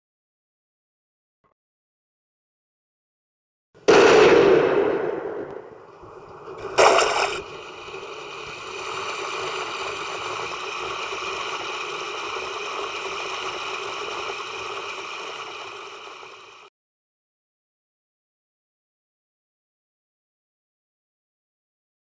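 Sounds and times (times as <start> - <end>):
short sharp burst: 3.9 - 14.3
water sound effect: 5.8 - 16.4.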